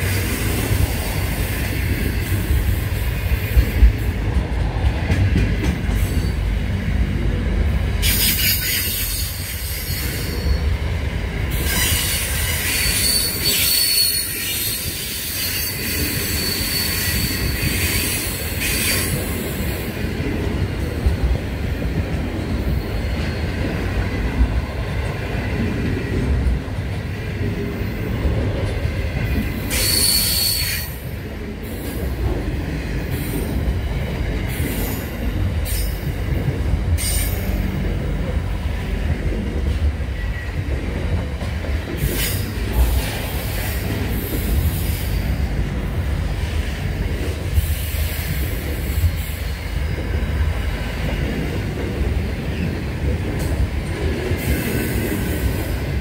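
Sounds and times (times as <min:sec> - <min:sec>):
train wheels rumbling on rail: 0:00.0 - 0:56.0
high wheel squeals and hisses: 0:29.7 - 0:31.0.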